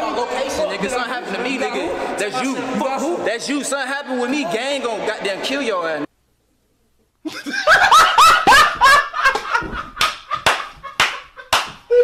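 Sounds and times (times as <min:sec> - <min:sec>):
loud laughter: 0:07.3 - 0:12.0.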